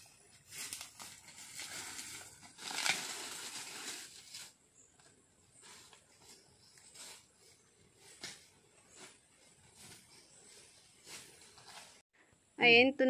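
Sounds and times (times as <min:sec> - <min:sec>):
dry rustling and crinkling: 0:00.0 - 0:12.0.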